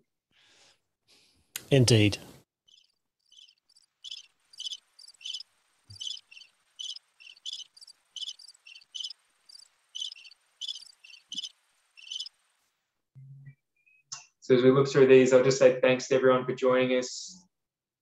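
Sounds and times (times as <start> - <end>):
insect chirping: 2.6 - 12.6.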